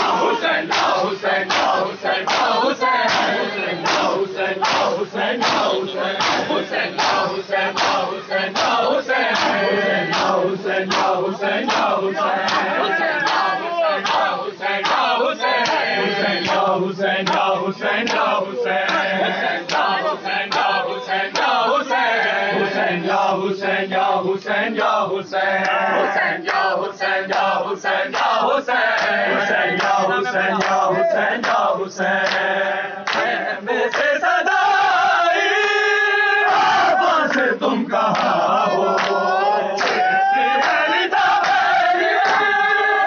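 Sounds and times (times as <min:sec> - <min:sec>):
hands slapping chests: 0:00.0 - 0:19.1, 0:39.0 - 0:39.2, 0:39.8 - 0:40.8
men chanting in unison: 0:00.0 - 0:43.0.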